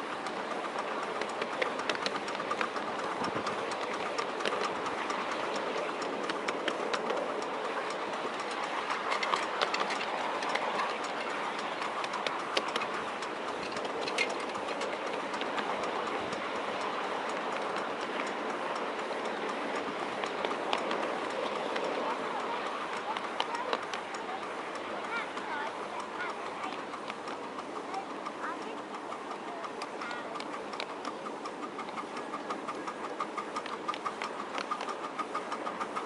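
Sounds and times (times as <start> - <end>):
clicks over rail joints: 0.0 - 36.0
train wheels rattling on rails: 0.0 - 36.0.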